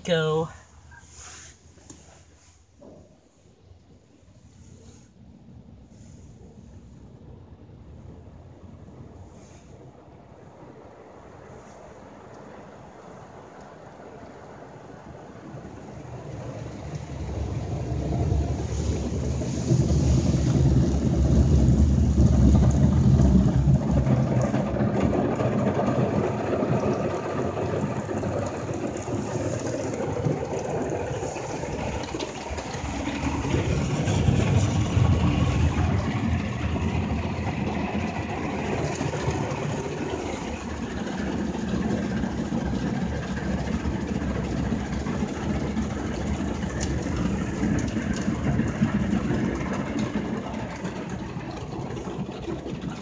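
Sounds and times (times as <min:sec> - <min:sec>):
car wash low rumble: 0:00.0 - 0:53.0
water and brushes beating on car: 0:15.1 - 0:53.0.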